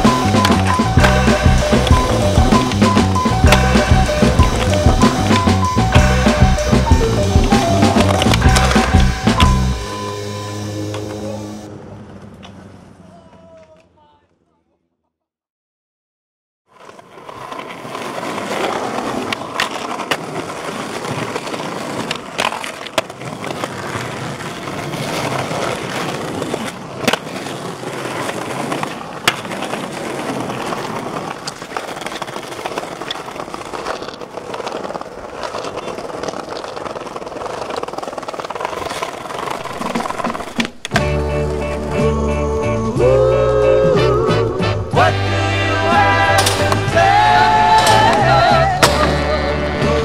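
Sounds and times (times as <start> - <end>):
skateboard clacking on ground: 0.0 - 10.0, 16.7 - 42.0, 46.3 - 50.0
skateboard wheels rolling on concrete: 0.0 - 14.8, 16.7 - 50.0.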